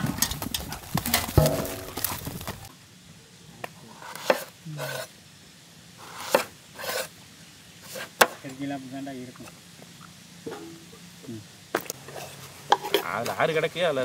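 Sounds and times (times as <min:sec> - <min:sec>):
knife scraping: 0:06.0 - 0:07.1, 0:07.8 - 0:08.2.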